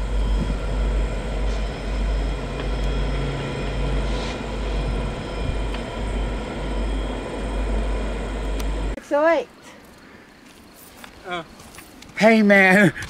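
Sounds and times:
steady whines: 0.0s - 9.2s
diesel locomotives rumbling: 0.0s - 9.3s.

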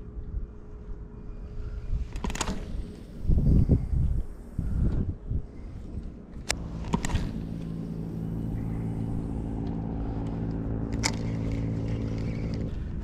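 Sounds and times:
engine-like drone: 0.0s - 13.0s.

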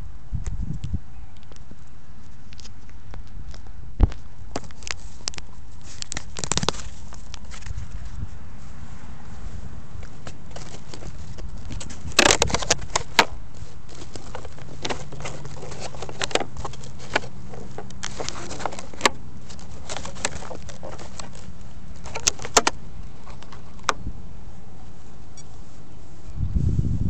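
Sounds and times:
sharp clicks and light knocks: 10.0s - 24.0s.

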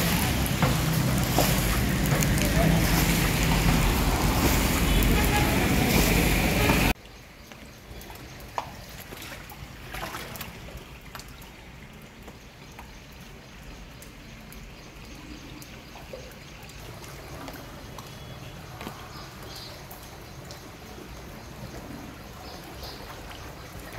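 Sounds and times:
bucket sloshing through water: 0.0s - 7.0s, 7.9s - 11.4s, 16.8s - 23.9s
water trickling and dripping: 0.0s - 23.9s.

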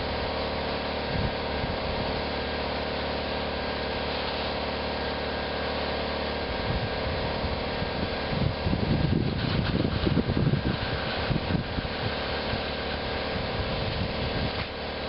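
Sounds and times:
small engine running: 0.0s - 15.0s
low rustling and bumps: 6.6s - 14.8s.

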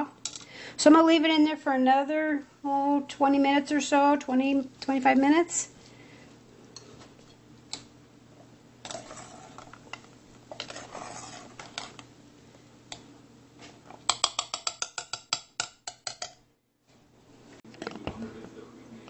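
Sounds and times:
metal spoon clinking on pot: 14.1s - 16.4s.

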